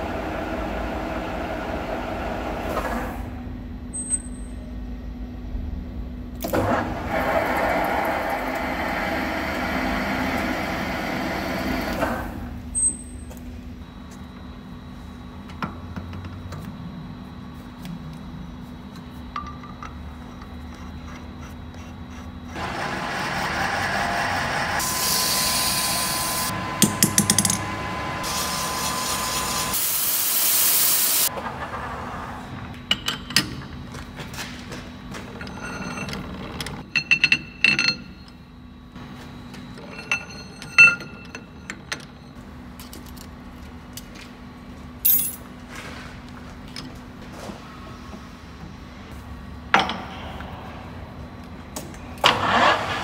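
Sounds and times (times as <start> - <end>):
rushing hiss of air: 28.2 - 31.3
sharp air blasts: 28.2 - 31.3
metallic clinks of tools: 45.1 - 45.4.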